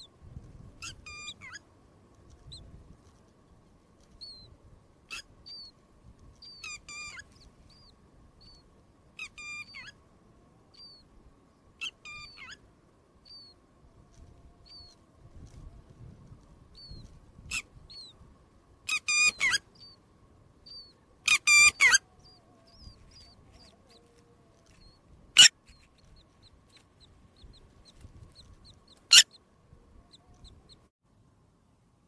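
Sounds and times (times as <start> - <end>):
faint high bird peeps: 0.8 - 1.6, 2.3 - 2.7, 4.0 - 10.0, 10.7 - 11.1, 11.8 - 12.6, 13.2 - 15.7, 16.7 - 18.2, 18.9 - 20.0, 20.6 - 30.9.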